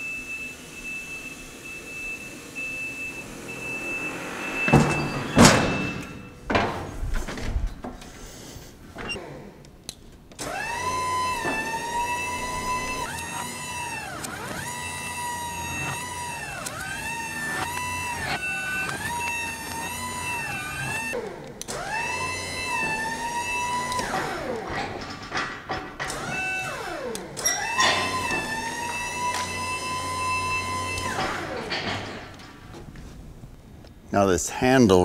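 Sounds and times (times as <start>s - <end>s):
motion alarm beeping rapidly: 0.0s - 6.4s
electric drive motor whining: 10.4s - 25.0s, 26.1s - 32.4s.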